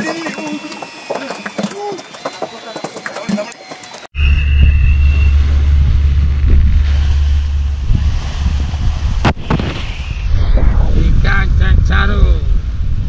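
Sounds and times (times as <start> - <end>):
water washing: 0.0 - 4.1
wind buffeting microphone: 4.6 - 13.0.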